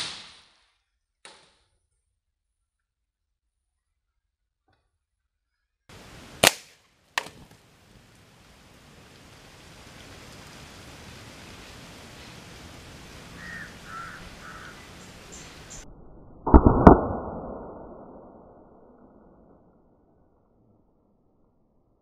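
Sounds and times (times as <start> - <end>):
soft steady hiss: 5.9 - 15.8
air rifle shot crack: 6.4 - 7.4, 16.5 - 18.2.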